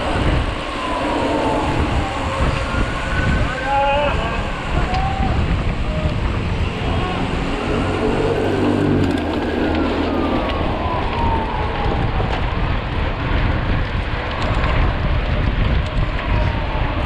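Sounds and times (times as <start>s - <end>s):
faint falling whine: 0.0s - 13.2s
tyres rolling over trail: 0.0s - 17.0s
wind rushing over microphone: 0.0s - 17.0s.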